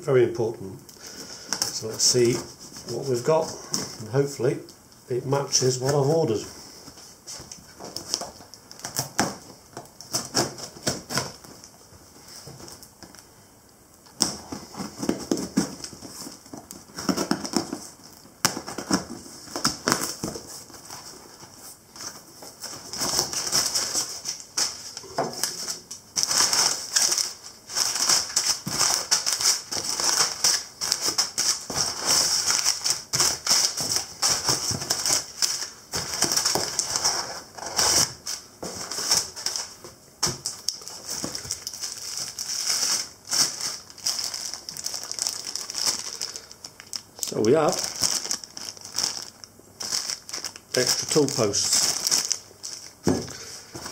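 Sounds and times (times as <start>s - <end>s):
packing paper crinkling: 5.4s - 13.3s, 14.1s - 53.9s
tape tearing: 7.3s - 11.7s, 14.0s - 21.1s, 22.0s - 53.0s.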